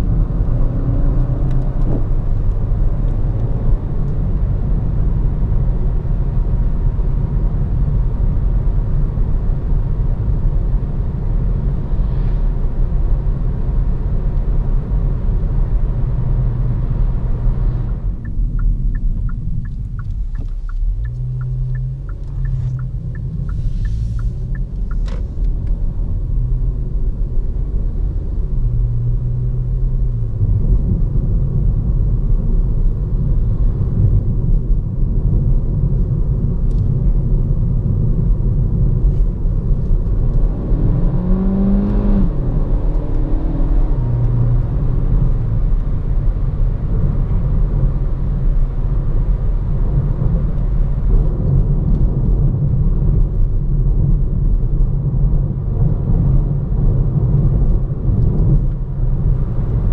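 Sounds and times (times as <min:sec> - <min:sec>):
car engine hum: 0:00.0 - 0:59.9
road and tyre noise: 0:00.0 - 0:59.9
turn signal ticking: 0:17.9 - 0:25.8.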